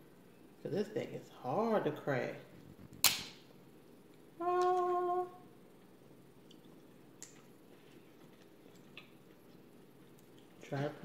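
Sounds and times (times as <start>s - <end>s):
woman humming: 4.4s - 5.4s.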